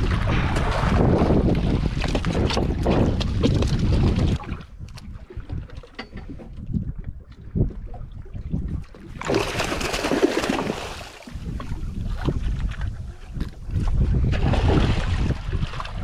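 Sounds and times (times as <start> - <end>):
wind on microphone: 0.0 - 16.0
fish splashing at water surface: 9.2 - 11.4.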